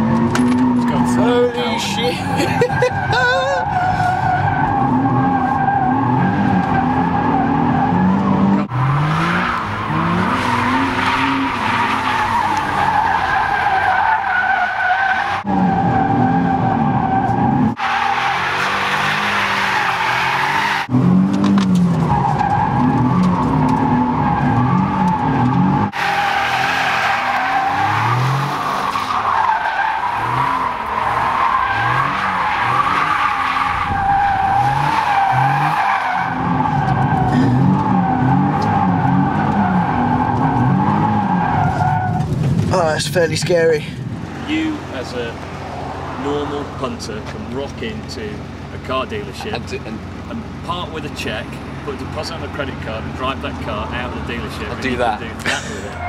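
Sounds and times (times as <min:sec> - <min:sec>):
car engine revving: 0:00.0 - 0:56.0
tyres squealing: 0:00.6 - 0:20.9, 0:22.0 - 0:42.3.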